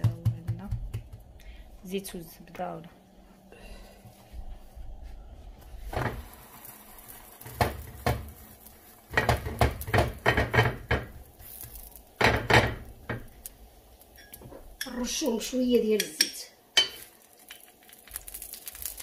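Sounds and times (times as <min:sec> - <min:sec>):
kitchenware knocking around pan: 0:00.0 - 0:01.2, 0:07.4 - 0:08.4, 0:09.1 - 0:11.3, 0:12.2 - 0:13.3.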